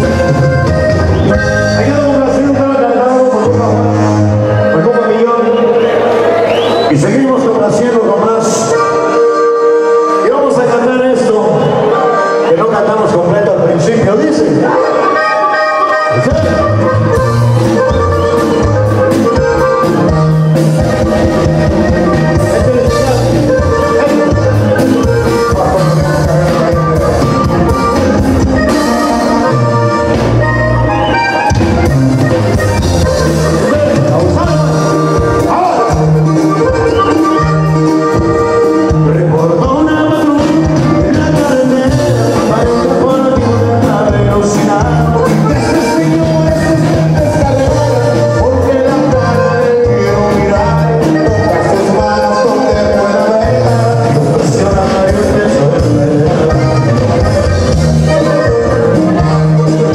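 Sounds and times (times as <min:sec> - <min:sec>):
tuba bass notes: 0:00.0 - 0:05.2, 0:14.6 - 0:59.9
accordion melody: 0:00.0 - 0:59.9
guitars: 0:00.0 - 0:59.9
steady beat: 0:15.0 - 0:59.9.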